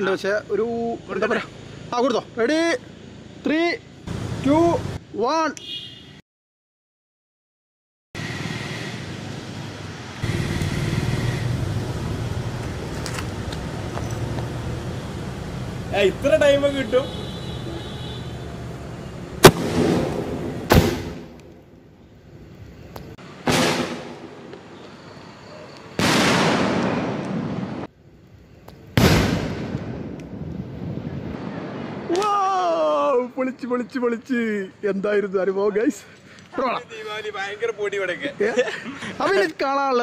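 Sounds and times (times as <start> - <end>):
rumble after firework bangs: 19.4 - 21.4, 23.4 - 24.5, 26.0 - 27.9, 28.9 - 32.2
firework bangs: 19.4 - 21.5, 23.3 - 24.5, 25.9 - 27.9, 28.9 - 32.2
sharp crackles: 19.4 - 32.4.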